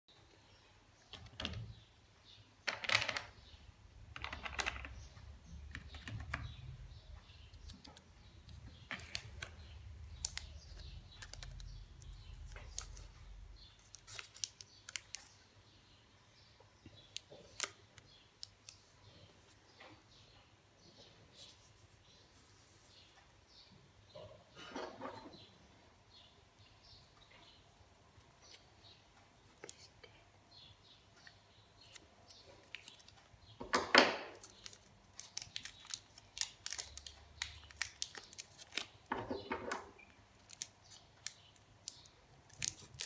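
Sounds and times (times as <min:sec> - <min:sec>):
plastic wrapper crinkling: 0:13.8 - 0:15.3, 0:34.4 - 0:39.0, 0:40.4 - 0:43.0.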